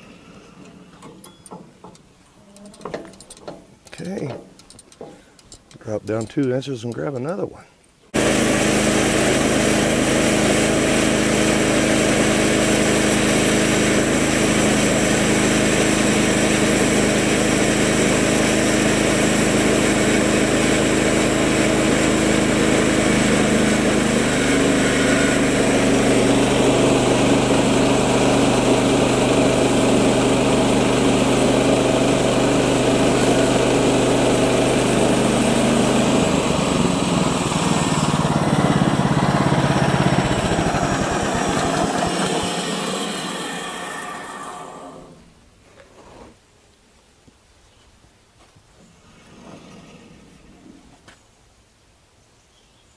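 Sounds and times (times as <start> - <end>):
gas engine under load: 8.2 - 45.4
band saw blade cutting wood: 19.1 - 29.1, 35.0 - 45.2.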